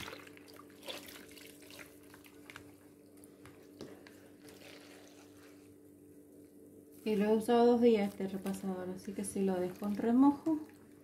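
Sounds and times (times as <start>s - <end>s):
water sloshing and squelching: 0.0s - 2.8s, 9.1s - 11.0s.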